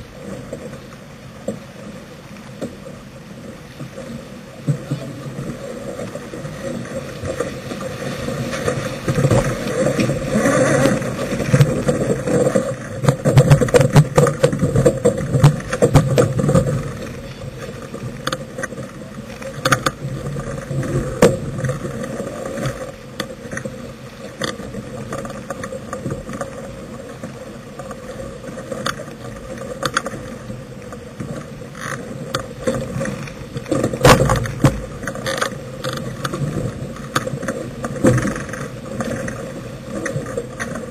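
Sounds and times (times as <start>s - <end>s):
water rushing past a boat: 0.0s - 40.9s
sharp knocks and clicks: 13.0s - 16.9s.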